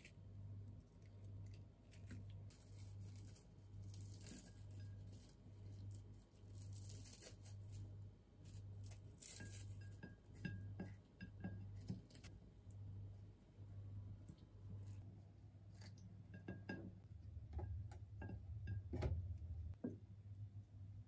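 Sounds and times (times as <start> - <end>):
fingers crumbling cereal: 0.0 - 10.0.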